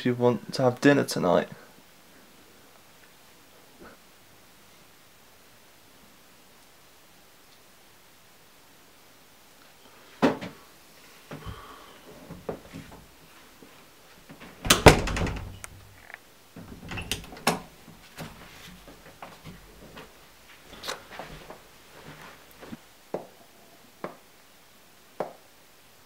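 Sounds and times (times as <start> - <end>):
door clattering: 14.5 - 18.4
knocks and thuds: 14.6 - 15.6.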